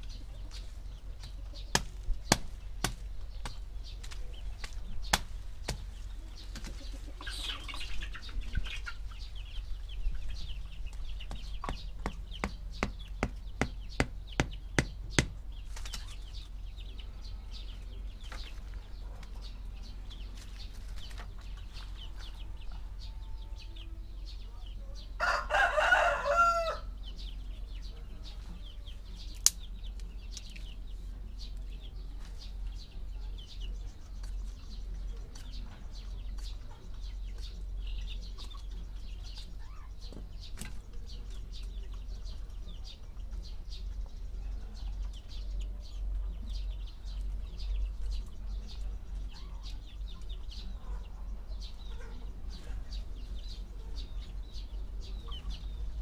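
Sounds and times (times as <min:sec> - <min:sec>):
rooster crowing: 0:25.2 - 0:27.0.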